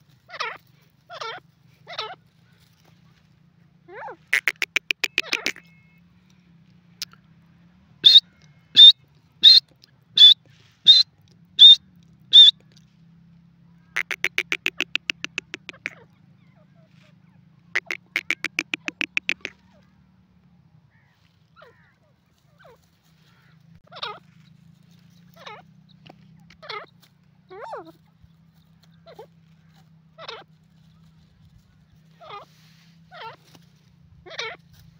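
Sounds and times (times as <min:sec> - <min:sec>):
francolin calling: 0:04.4 - 0:05.6, 0:08.0 - 0:08.2, 0:08.8 - 0:09.6, 0:10.2 - 0:11.0, 0:11.6 - 0:12.5, 0:14.0 - 0:16.0, 0:17.8 - 0:19.5.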